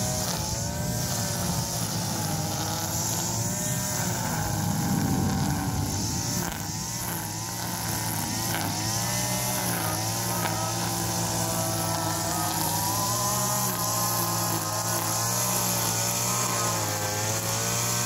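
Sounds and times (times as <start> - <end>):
brush cutter engine cutting grass: 0.0 - 18.0.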